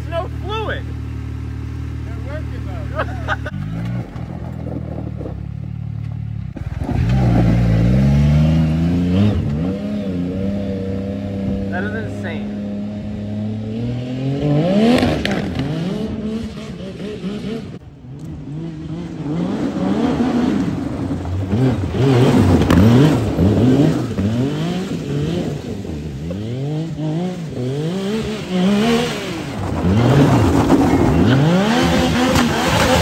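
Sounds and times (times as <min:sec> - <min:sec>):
engine revving: 0:00.0 - 0:33.0.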